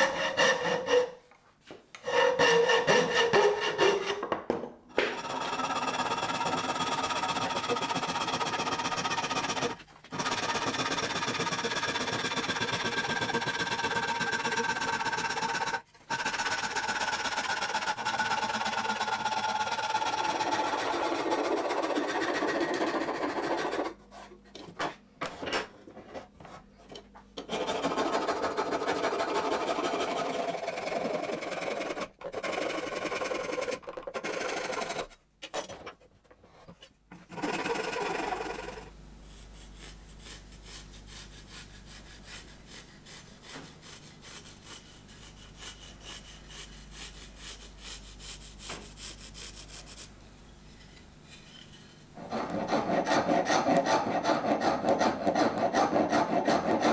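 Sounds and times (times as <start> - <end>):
wood rasp scratching: 0.0 - 1.2, 2.0 - 4.3, 5.1 - 24.0, 27.5 - 35.1, 52.2 - 56.9.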